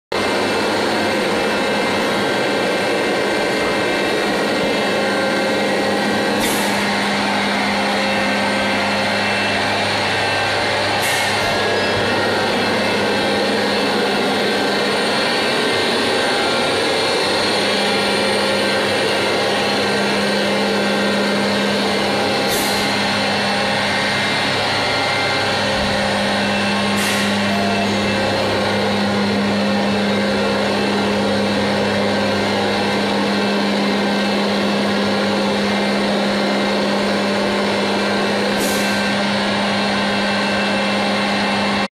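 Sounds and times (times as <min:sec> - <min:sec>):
vacuum conveyor rushing air: 0:00.1 - 0:41.9
sharp air hiss: 0:06.4 - 0:06.9, 0:11.0 - 0:11.5, 0:22.5 - 0:22.9, 0:26.9 - 0:27.4.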